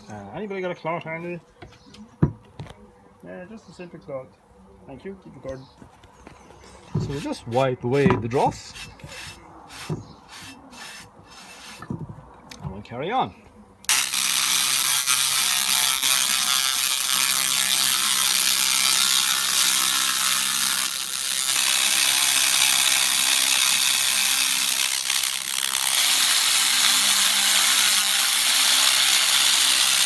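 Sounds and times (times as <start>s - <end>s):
laser cleaner crackling buzz: 13.9s - 30.0s.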